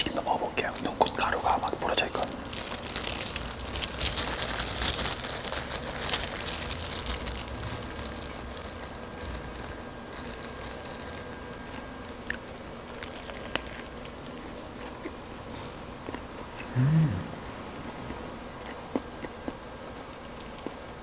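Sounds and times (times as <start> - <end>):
plastic gloves crinkling: 0.0 - 15.1
fried chicken crackling: 0.0 - 16.6.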